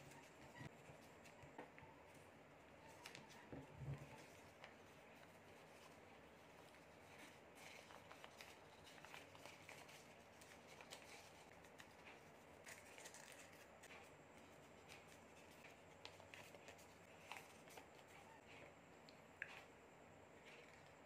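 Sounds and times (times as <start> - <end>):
paper crinkling and rustling: 2.8 - 18.6.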